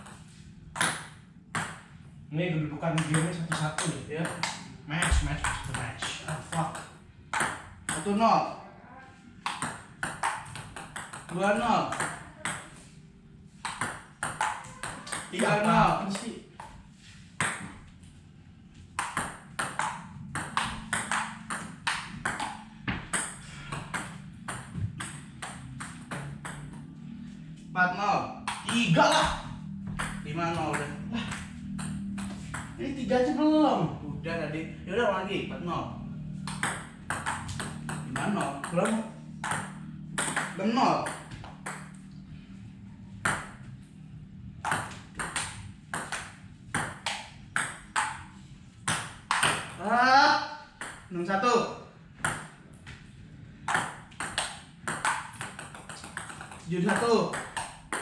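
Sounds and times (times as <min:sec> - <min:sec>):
table tennis ball hits: 0:00.0 - 0:01.9, 0:02.9 - 0:08.2, 0:09.4 - 0:12.8, 0:13.6 - 0:16.8, 0:17.4 - 0:17.9, 0:18.9 - 0:27.1, 0:28.4 - 0:32.8, 0:36.2 - 0:42.2, 0:43.0 - 0:49.9, 0:50.8 - 0:51.1, 0:52.2 - 0:52.9, 0:53.6 - 0:58.0
table tennis ball clicking: 0:36.4 - 0:42.0, 0:53.7 - 0:58.0.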